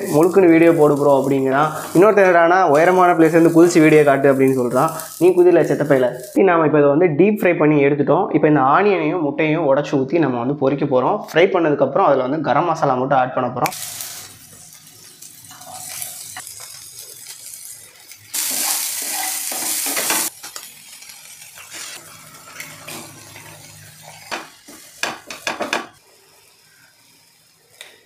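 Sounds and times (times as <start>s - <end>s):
onion and egg frying in oil: 0.0s - 6.4s, 13.7s - 28.0s
spatula stirring in pan: 1.2s - 2.2s, 13.8s - 25.8s.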